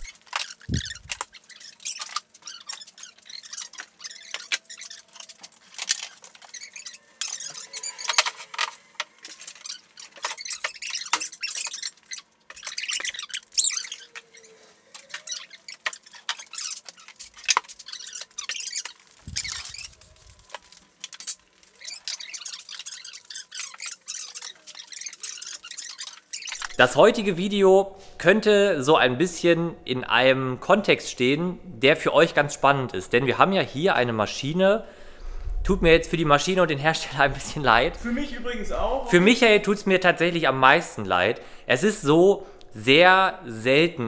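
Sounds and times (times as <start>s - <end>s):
short squeak: 0.0s - 20.4s.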